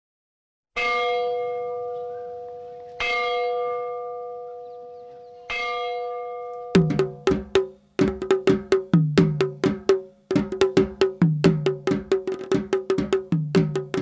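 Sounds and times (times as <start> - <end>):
percussion beat: 6.8 - 14.0.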